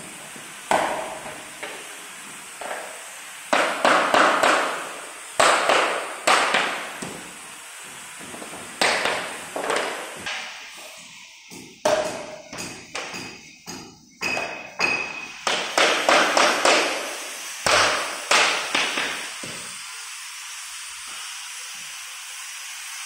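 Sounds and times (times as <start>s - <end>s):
knocks on wooden floor planks: 5.4s - 7.3s, 8.3s - 10.4s, 17.7s - 19.6s.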